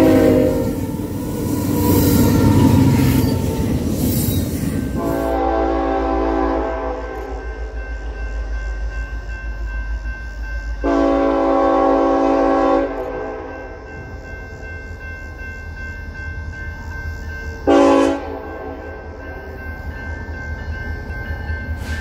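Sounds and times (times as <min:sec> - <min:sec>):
locomotive horn blasts: 0:00.0 - 0:01.2, 0:05.0 - 0:07.5, 0:10.8 - 0:13.8, 0:17.7 - 0:19.1
train rumbling: 0:00.0 - 0:22.0.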